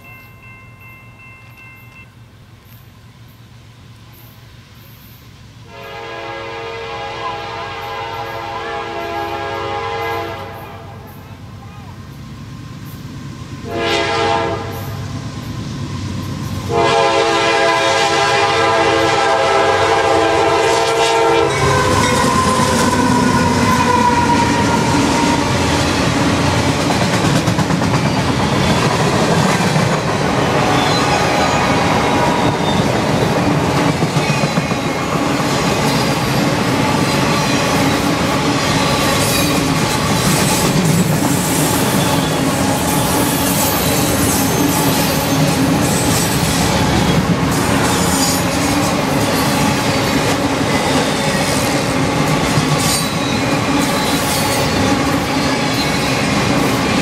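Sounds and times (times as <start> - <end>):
train horn blasts: 5.6 - 11.3, 13.6 - 15.0, 16.6 - 25.8, 30.4 - 32.9
train cars rumbling and clattering: 7.5 - 57.0
wheels clacking over rail joints: 21.5 - 57.0.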